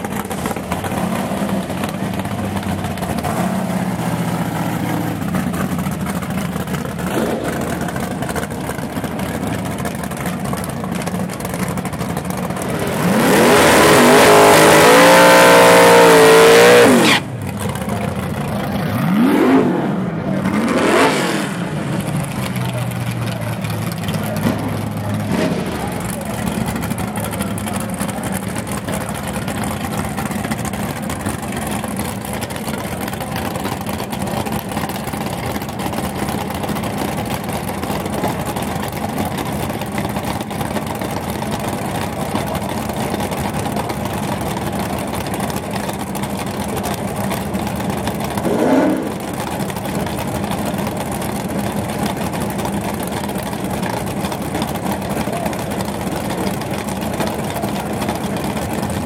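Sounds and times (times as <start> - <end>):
car engine idling: 0.0 - 59.0
engine revving: 7.0 - 8.3, 12.6 - 22.8, 23.9 - 29.0, 48.4 - 49.5.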